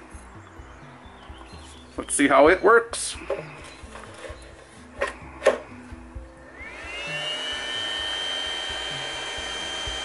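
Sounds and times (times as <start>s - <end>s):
plastic clicks of battery seating: 5.0s - 5.7s
inverter cooling fan whine: 6.2s - 10.0s.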